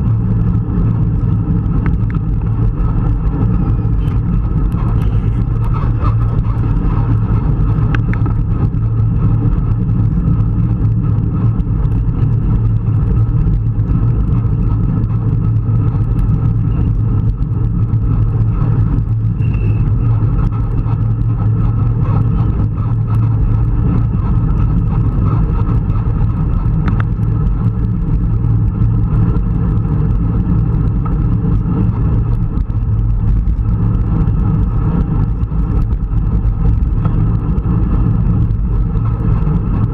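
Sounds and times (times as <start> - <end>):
bike tyres on tarmac: 0.0 - 39.9
wind rumble on microphone: 0.0 - 39.9.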